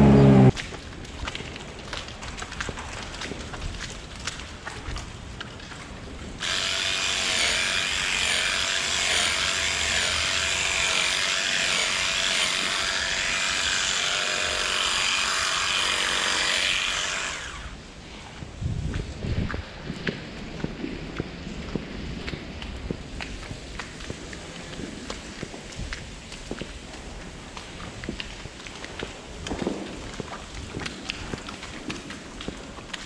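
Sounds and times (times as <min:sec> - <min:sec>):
handheld power tool running: 0:00.0 - 0:00.5, 0:06.4 - 0:17.8.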